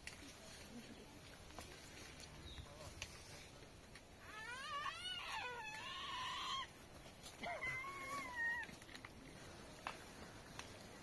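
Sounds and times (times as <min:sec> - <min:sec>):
animal whining: 0:04.2 - 0:06.7, 0:07.4 - 0:08.8.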